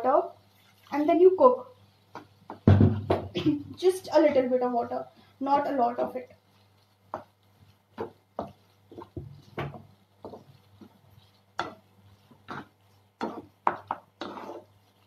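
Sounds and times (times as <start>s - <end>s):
wooden spatula scraping metal pan: 7.9s - 15.0s.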